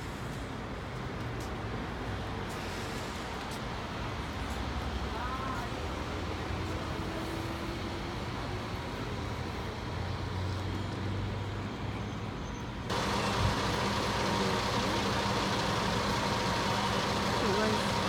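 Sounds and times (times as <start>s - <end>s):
bus engine rumbling: 12.9s - 18.0s
steady higher hum: 12.9s - 18.0s.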